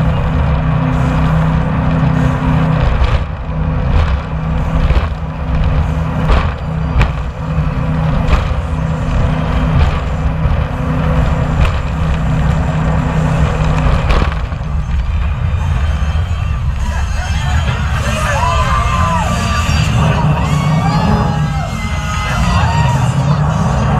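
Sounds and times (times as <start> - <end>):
rush of wind and spray: 0.0 - 15.6
boat engine drone: 0.0 - 23.9
sharp knocks: 2.8 - 12.9.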